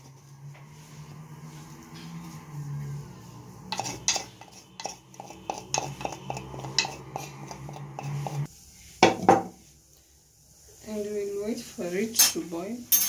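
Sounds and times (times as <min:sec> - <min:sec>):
metal spoon clinking and scraping: 0:03.6 - 0:08.5, 0:12.1 - 0:13.0.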